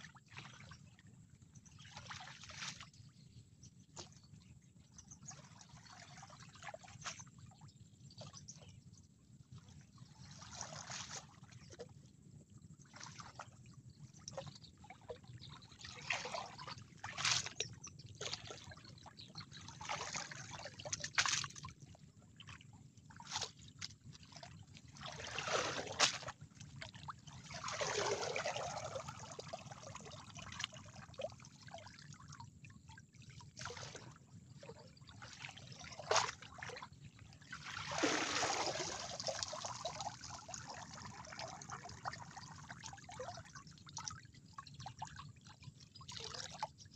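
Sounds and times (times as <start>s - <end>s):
muddy water splashing: 25.0s - 26.4s, 27.4s - 29.6s, 37.6s - 42.0s.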